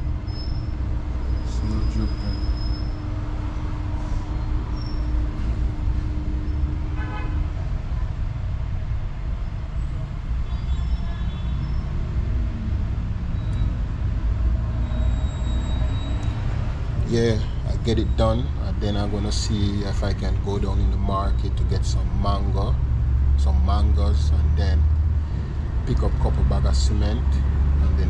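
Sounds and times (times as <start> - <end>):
vehicle and workshop rumble: 0.0 - 28.0
short horn toot: 6.9 - 7.4.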